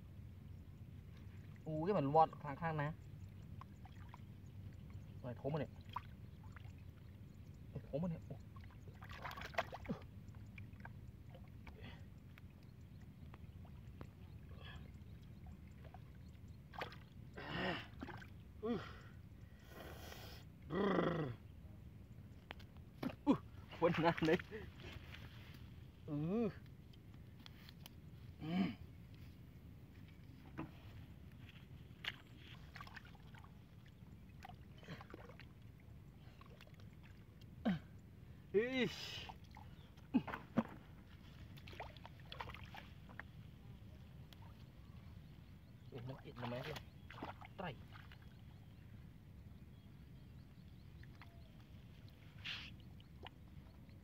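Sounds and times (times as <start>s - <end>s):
low steady background: 0.0s - 54.0s
hands sloshing in muddy water: 8.1s - 12.6s, 13.5s - 18.4s, 23.0s - 25.5s, 32.0s - 37.4s, 39.1s - 44.6s, 46.0s - 48.8s
hands squelching in wet mud: 8.9s - 10.1s, 46.3s - 48.4s
man's short vocal sounds: 20.7s - 21.4s, 28.4s - 28.8s.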